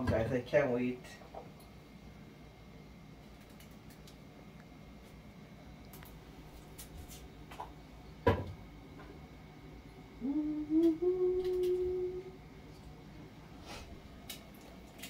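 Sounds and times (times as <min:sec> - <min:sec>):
person humming one note: 0:10.2 - 0:12.4.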